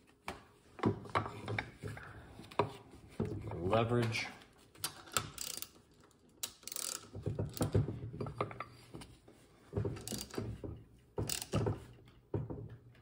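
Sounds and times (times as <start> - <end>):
ratchet wrench clicking: 5.0 - 7.7, 10.0 - 10.4, 11.2 - 11.6.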